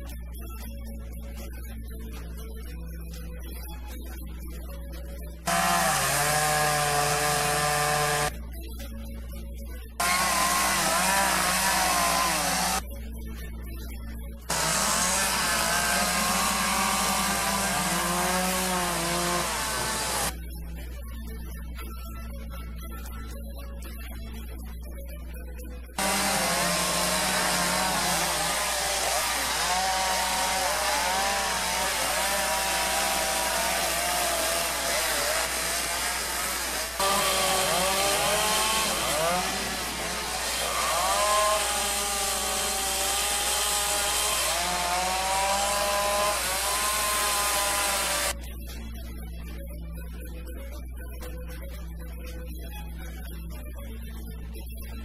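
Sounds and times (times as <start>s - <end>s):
background music: 0.0s - 55.0s
chainsaw cutting wood: 5.5s - 8.3s, 10.0s - 12.8s, 14.5s - 20.4s, 26.0s - 48.4s.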